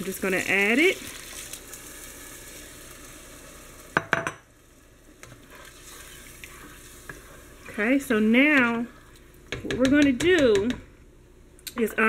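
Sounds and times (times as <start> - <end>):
broth sizzling in hot pot: 0.0 - 9.6.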